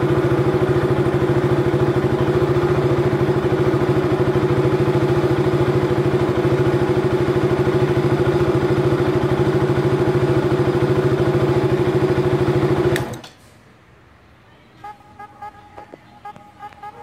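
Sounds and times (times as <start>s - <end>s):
motorcycle engine idling: 0.0s - 12.9s
switch off click: 12.9s - 13.4s.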